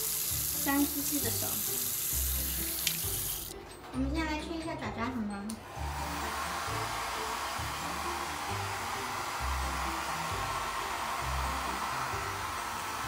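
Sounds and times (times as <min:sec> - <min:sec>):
background music: 0:00.0 - 0:13.0
hair dryer blowing air: 0:05.6 - 0:13.0.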